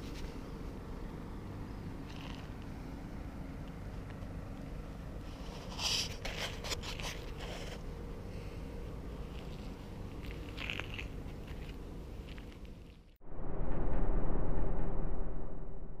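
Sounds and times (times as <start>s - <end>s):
low outdoor rumble: 0.0s - 16.0s
crackly scrapes: 5.2s - 8.0s, 9.3s - 13.2s.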